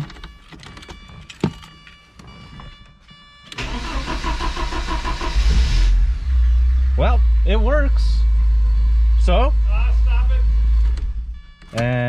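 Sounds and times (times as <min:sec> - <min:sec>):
engine cranking by starter: 0:03.5 - 0:07.1, 0:10.4 - 0:12.0.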